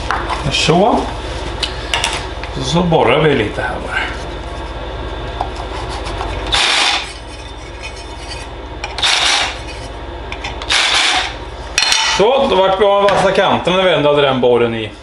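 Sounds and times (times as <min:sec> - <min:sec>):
power drill cutting metal: 0:06.5 - 0:07.1, 0:09.0 - 0:09.6, 0:10.7 - 0:11.4.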